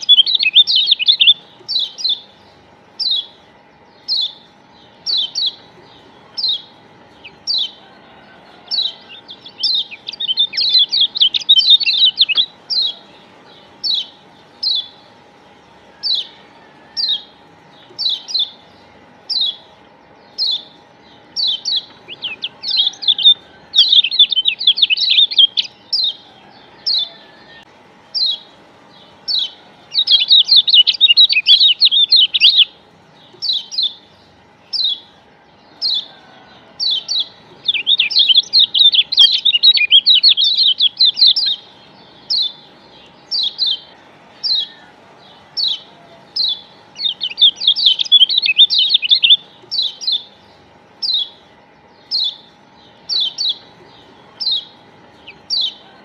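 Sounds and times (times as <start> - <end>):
bird fast twittering: 0.0 - 3.4, 4.0 - 5.7, 8.7 - 13.0, 20.3 - 26.2, 29.2 - 32.7, 36.8 - 42.6, 45.6 - 50.4, 52.1 - 55.9
bird high chirps: 0.0 - 15.2, 15.8 - 56.0.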